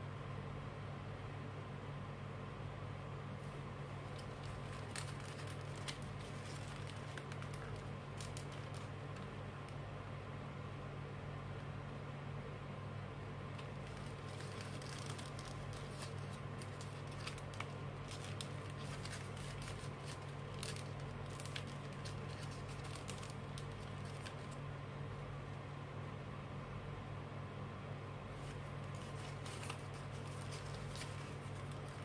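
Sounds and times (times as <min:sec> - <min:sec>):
steady low hum: 0:00.0 - 0:32.0
paper crinkling: 0:04.0 - 0:09.8, 0:13.5 - 0:24.6, 0:28.3 - 0:32.0.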